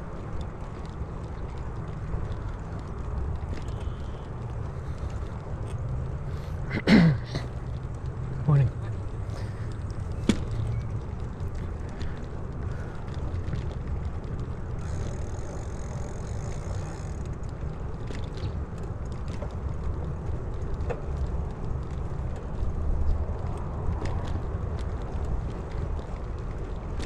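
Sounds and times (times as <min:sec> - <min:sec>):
faint ticks: 0:00.0 - 0:06.6.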